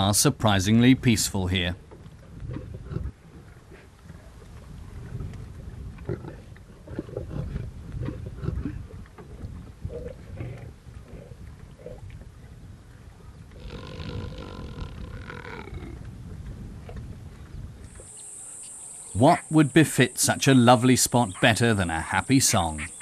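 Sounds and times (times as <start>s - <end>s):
lionesses growling: 2.2s - 12.1s, 13.5s - 16.1s.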